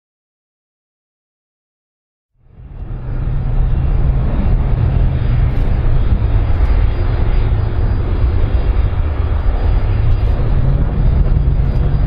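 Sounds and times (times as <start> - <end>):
jet engines rumbling: 2.4 - 12.0.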